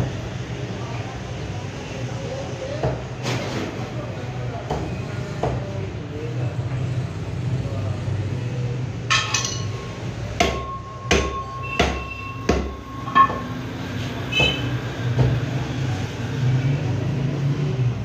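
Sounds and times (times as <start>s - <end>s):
cleaver chopping meat on wood: 10.4s - 12.8s
steady high tone: 10.4s - 14.1s.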